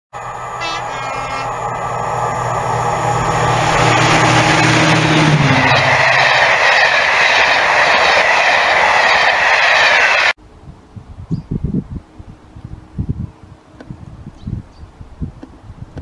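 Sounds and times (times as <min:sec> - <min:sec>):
locomotive engine drone: 0:00.1 - 0:10.6
train wheels rushing on rails: 0:00.2 - 0:10.4.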